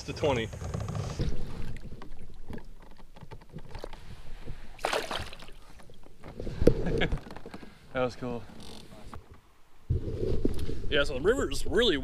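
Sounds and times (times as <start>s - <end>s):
water splashing against kayak: 1.2s - 7.8s
fish splashing: 4.7s - 6.0s.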